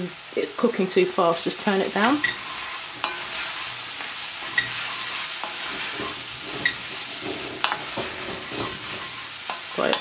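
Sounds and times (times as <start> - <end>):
vegetables sizzling in pot: 0.0 - 10.0
wooden spoon scraping pot: 4.4 - 10.0.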